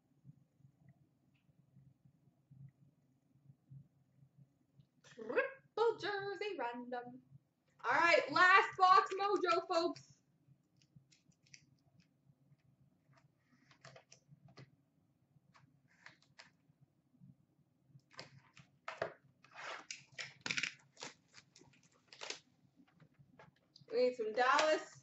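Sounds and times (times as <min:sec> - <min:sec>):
cardboard crinkling and tearing: 0:19.7 - 0:22.4.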